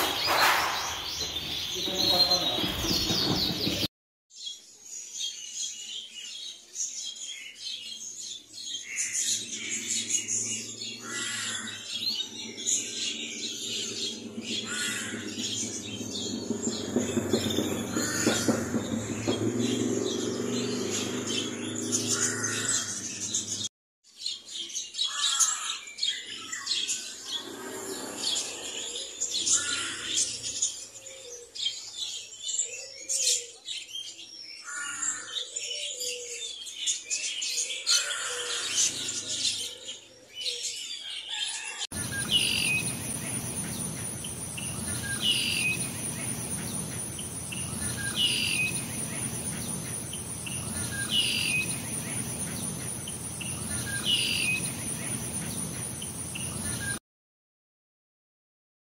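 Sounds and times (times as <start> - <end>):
caged birds chirping and twittering: 0.0 - 57.0
high insect-like drone: 42.0 - 57.0.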